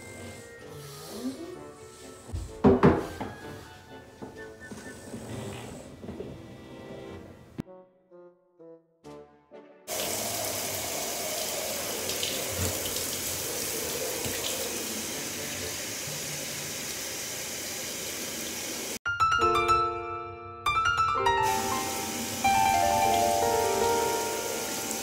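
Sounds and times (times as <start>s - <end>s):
piano music: 0.0s - 8.9s, 19.1s - 25.0s
shower water running: 9.9s - 19.0s, 21.4s - 25.0s
soft musical notes: 19.1s - 25.0s.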